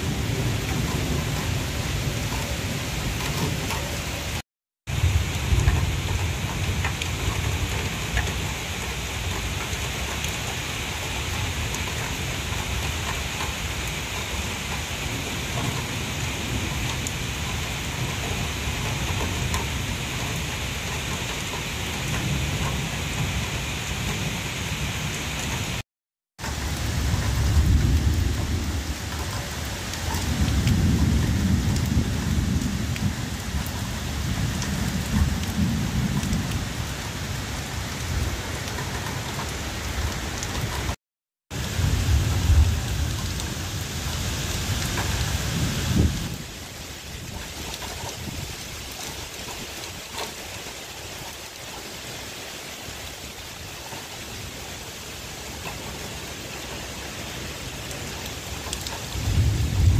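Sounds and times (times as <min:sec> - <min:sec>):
rain falling on leaves: 0:00.0 - 0:59.9.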